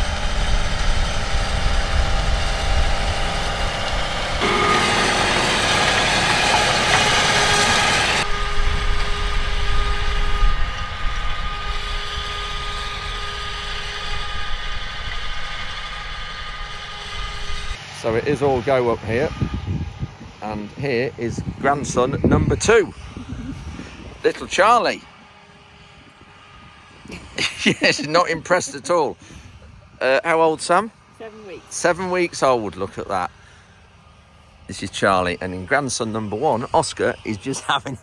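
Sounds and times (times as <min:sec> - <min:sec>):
tractor engine drone with whine: 0:00.0 - 0:38.0.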